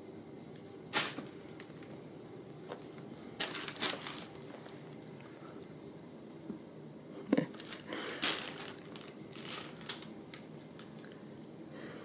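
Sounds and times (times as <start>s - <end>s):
paper envelope crinkling: 3.4s - 4.7s, 7.5s - 11.1s.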